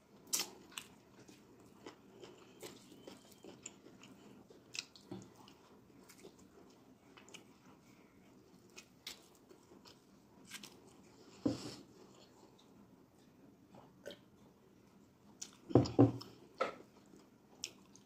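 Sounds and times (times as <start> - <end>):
chewing: 0.3 - 11.1, 15.4 - 18.0.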